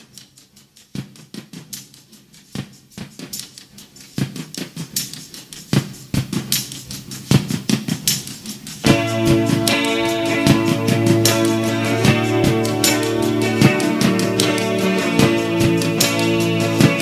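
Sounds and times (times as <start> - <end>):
sharp percussive taps and clicks: 0.0 - 17.0
faint low drone: 8.9 - 17.0.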